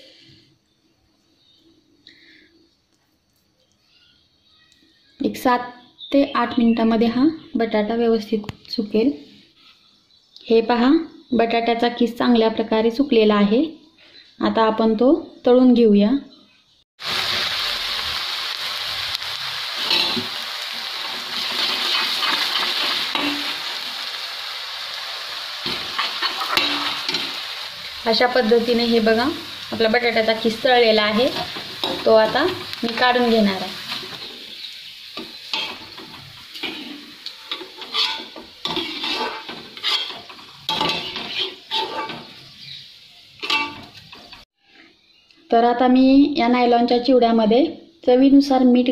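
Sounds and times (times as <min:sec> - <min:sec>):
potato shreds sizzling in oil: 0:17.0 - 0:44.8
spoon scraping a metal pan: 0:25.6 - 0:27.4, 0:35.2 - 0:42.4, 0:43.4 - 0:44.4.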